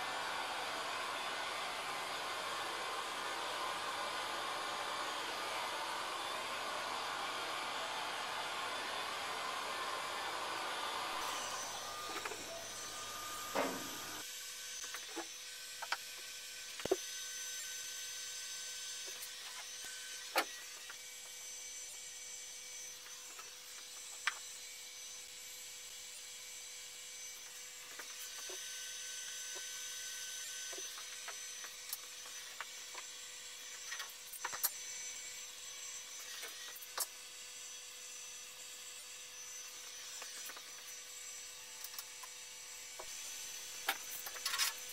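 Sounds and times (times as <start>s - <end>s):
heat gun blowing: 0.0s - 14.3s.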